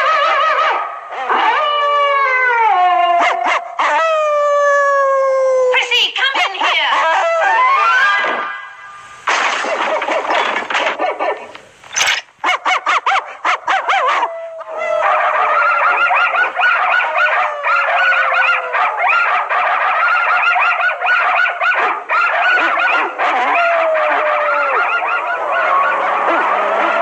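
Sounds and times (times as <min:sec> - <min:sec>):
cartoon dogs barking: 0:00.0 - 0:02.0, 0:03.0 - 0:04.1, 0:05.8 - 0:08.7, 0:09.3 - 0:27.0
long falling dog howl: 0:00.0 - 0:05.8, 0:07.0 - 0:08.6, 0:13.5 - 0:27.0.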